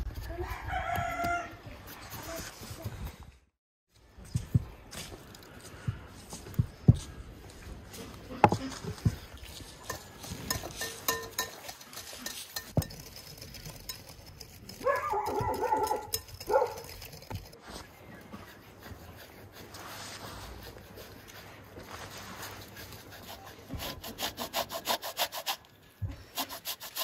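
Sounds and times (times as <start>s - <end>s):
utensils knocking against bowls: 9.9s - 13.2s.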